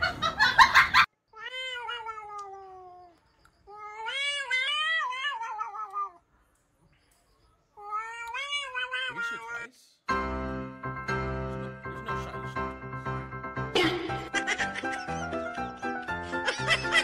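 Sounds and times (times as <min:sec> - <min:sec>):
cat yowling: 0:01.3 - 0:06.2, 0:07.8 - 0:09.7.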